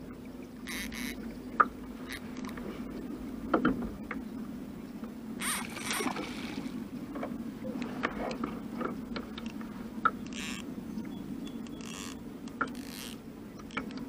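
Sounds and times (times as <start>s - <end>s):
steady low hum: 0.0s - 14.0s
fishing reel clicks: 0.7s - 1.2s, 5.4s - 6.8s, 10.3s - 10.7s, 11.6s - 14.0s.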